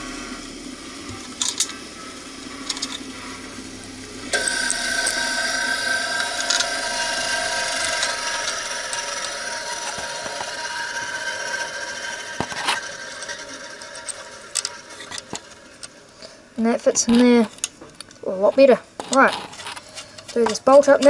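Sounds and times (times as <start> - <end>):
machine humming: 0.0 - 18.2
metal parts clinking: 1.4 - 1.8, 2.6 - 3.0, 12.4 - 16.0.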